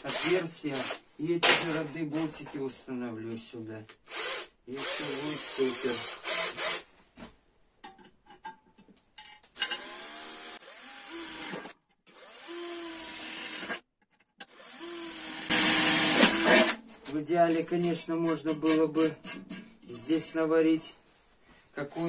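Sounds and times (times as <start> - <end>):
cordless drill drilling metal: 0.0 - 1.0, 4.1 - 6.8, 9.6 - 13.8, 14.4 - 16.8.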